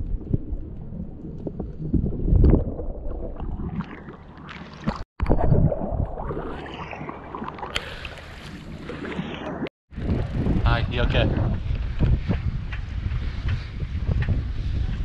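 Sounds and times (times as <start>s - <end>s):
water sloshing and splashing: 0.0s - 10.2s
muffled underwater rumbling and bubbling: 0.0s - 15.0s.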